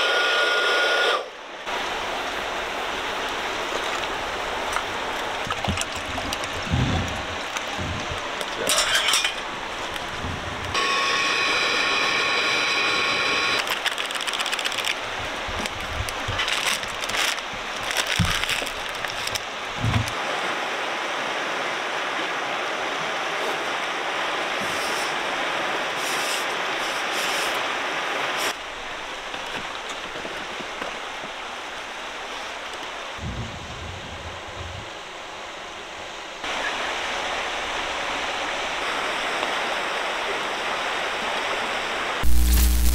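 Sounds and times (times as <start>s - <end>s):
cordless blower whine: 0.0s - 1.3s, 10.7s - 13.6s, 42.2s - 42.9s
river water over rapids: 0.6s - 42.2s.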